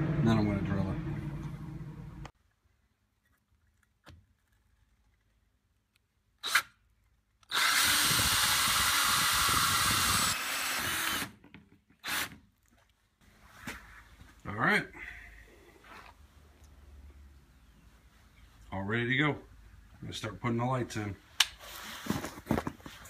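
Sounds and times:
power drill hole saw cutting: 7.5s - 11.4s, 12.0s - 12.4s.

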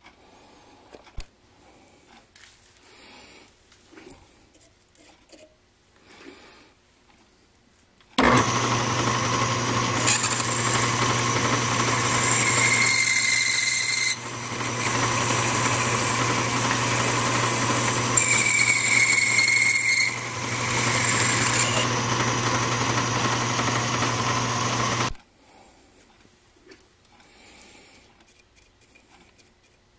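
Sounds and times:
lathe running: 8.2s - 25.2s
drill bit squealing: 9.2s - 25.1s.

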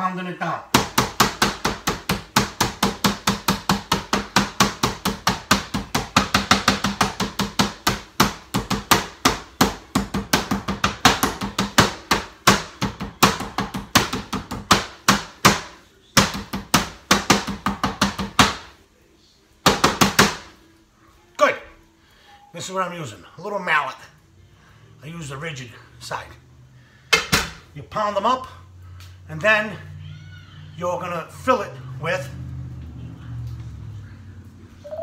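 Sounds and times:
meat mallet pounding chicken: 0.7s - 18.6s.

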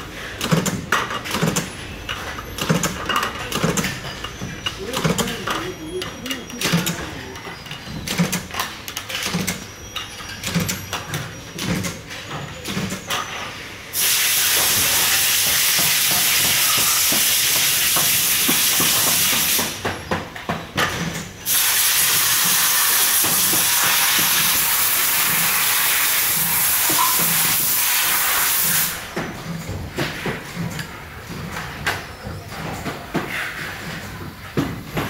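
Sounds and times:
rushing air hissing: 14.0s - 16.3s.

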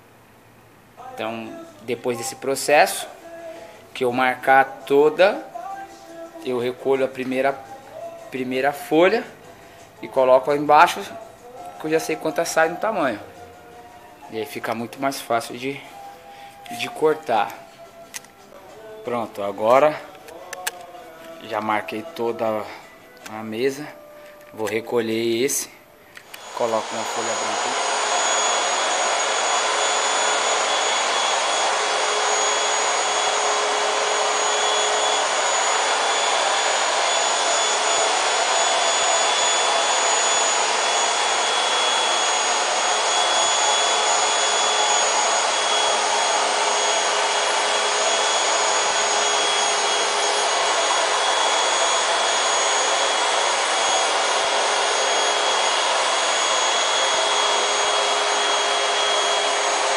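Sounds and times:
small electric motor whirring: 26.2s - 59.9s.

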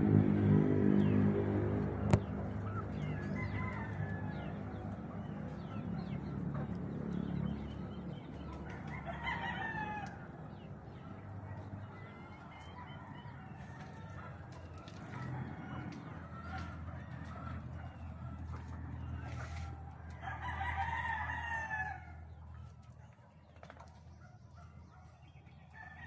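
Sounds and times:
rooster crowing: 3.0s - 4.7s, 8.8s - 10.3s, 20.1s - 22.2s.

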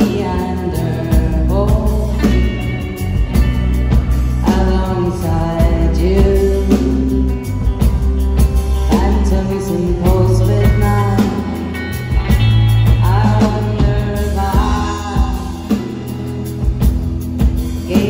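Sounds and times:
person singing: 0.0s - 7.8s, 8.7s - 16.9s, 17.7s - 18.0s
bass: 0.0s - 18.0s
drums: 0.0s - 18.0s
electric guitars: 0.0s - 18.0s.

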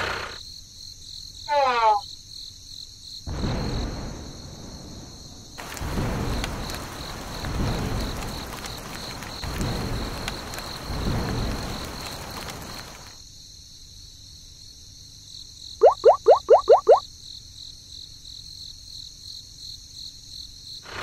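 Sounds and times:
crickets chirping: 0.4s - 20.9s
thunder rumbling: 3.3s - 13.1s
rain falling: 5.6s - 13.2s
rising chirps: 15.8s - 17.0s.

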